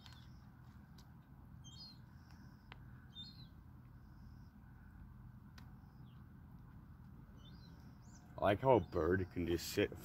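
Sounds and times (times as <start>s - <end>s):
thin whistled bird notes: 0.0s - 0.6s, 1.6s - 4.6s, 7.4s - 9.1s
low steady background noise: 0.0s - 10.0s
bird twittering call: 1.6s - 4.6s, 7.4s - 9.6s.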